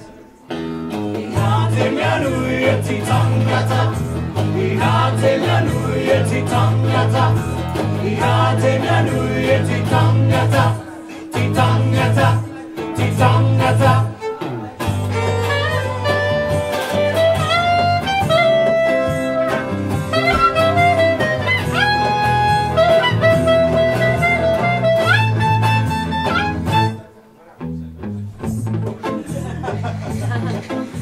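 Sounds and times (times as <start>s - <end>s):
strummed acoustic guitar: 0.0s - 27.2s
clarinet melody: 14.1s - 27.1s.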